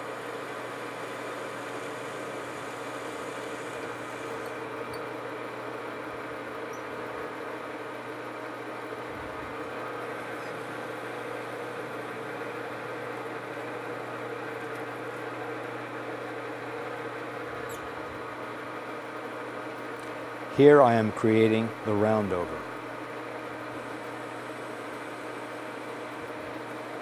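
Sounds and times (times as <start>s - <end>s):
metal lathe humming: 0.2s - 20.5s, 22.6s - 27.0s.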